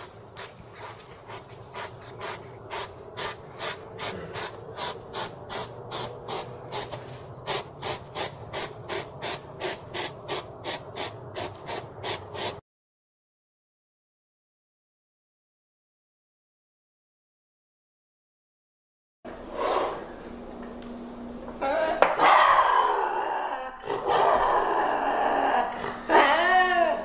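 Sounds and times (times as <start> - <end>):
hedgehog sniffing huffs: 0.0 - 12.6.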